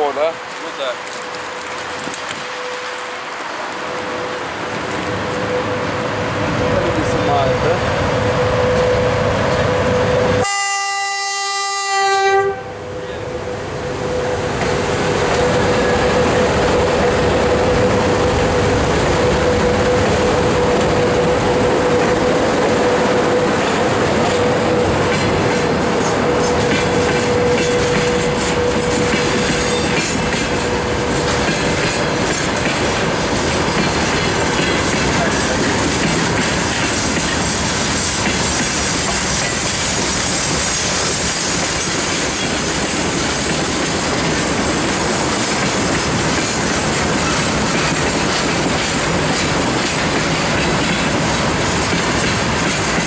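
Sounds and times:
train rumbling past: 0.0s - 53.0s
locomotive horn blast: 8.4s - 13.4s
wheels clacking over rail joints: 14.5s - 53.0s.

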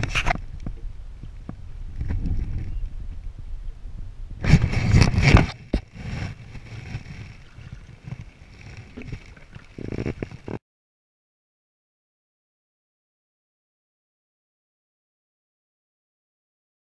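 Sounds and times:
canoe paddle strokes: 0.0s - 2.7s, 4.4s - 10.6s
water sloshing around hull: 4.4s - 10.6s.

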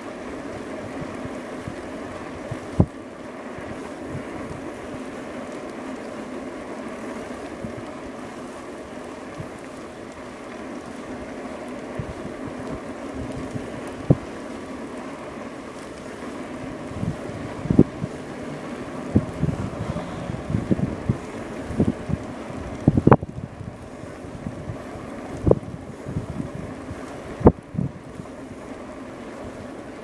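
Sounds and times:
wind noise on microphone: 0.0s - 3.0s, 3.6s - 5.3s, 11.2s - 14.4s, 15.0s - 30.0s
rolling road noise: 14.9s - 29.7s.

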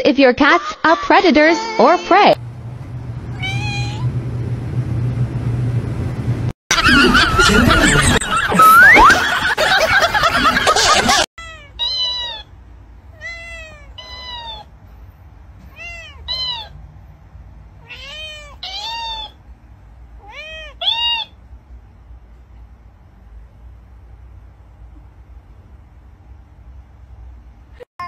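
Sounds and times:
cat meowing: 3.3s - 4.1s, 11.4s - 12.5s, 13.1s - 14.7s, 15.6s - 16.8s, 17.8s - 19.4s, 20.2s - 21.4s.

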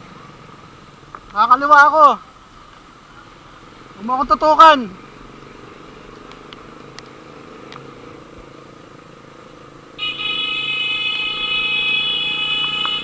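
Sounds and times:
vehicle engine and road noise: 0.0s - 13.0s
high-pitched vehicle horn: 10.0s - 13.0s.

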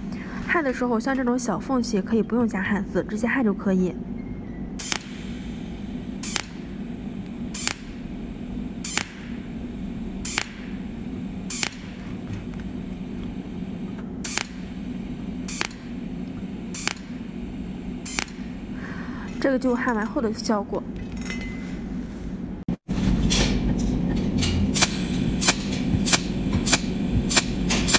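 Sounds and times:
steady low hum: 0.0s - 27.9s
spot welder snapping: 4.8s - 20.0s, 24.5s - 27.9s.

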